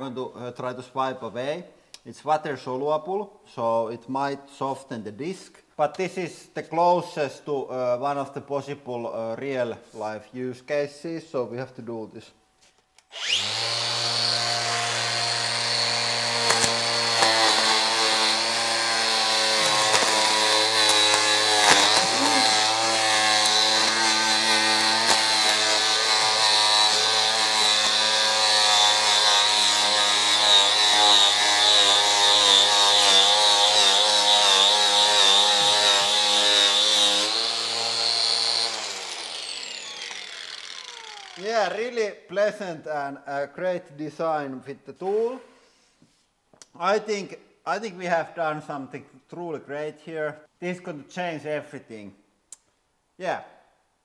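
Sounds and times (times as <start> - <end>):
angle grinder whining: 13.0 - 41.8
grinder spinning down: 13.1 - 41.8.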